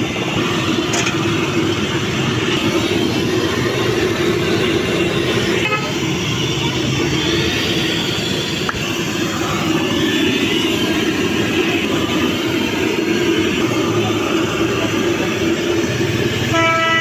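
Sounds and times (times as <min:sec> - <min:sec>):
roadside traffic: 0:00.0 - 0:17.0.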